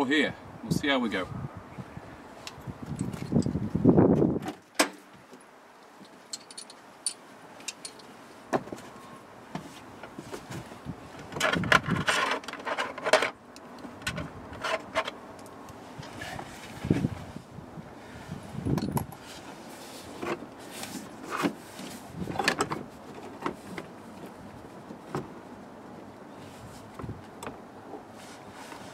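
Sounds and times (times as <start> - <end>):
metal fittings clinking: 6.3 - 8.1.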